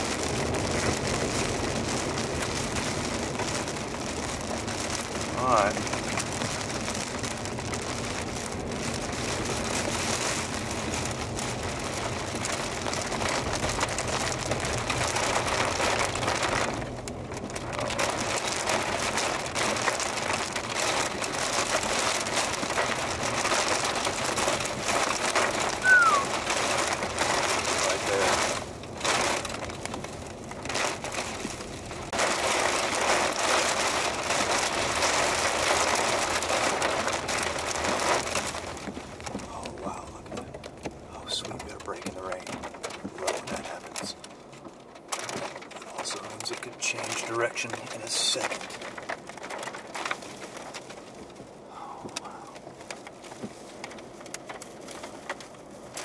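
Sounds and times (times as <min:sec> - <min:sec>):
rain: 0:00.0 - 0:56.0
short falling chirp: 0:25.8 - 0:26.3.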